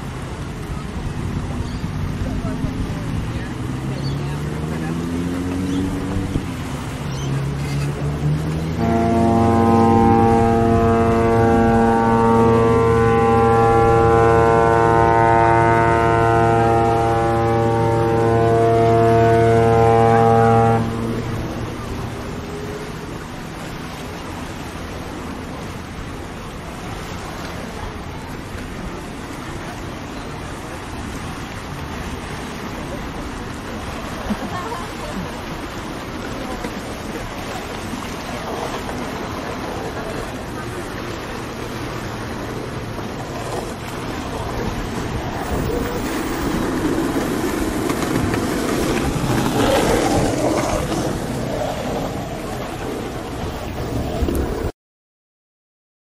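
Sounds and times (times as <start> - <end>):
boat engine rumbling: 0.0 - 54.7
water noise: 0.0 - 54.7
wind noise on microphone: 5.7 - 22.3, 43.2 - 54.7.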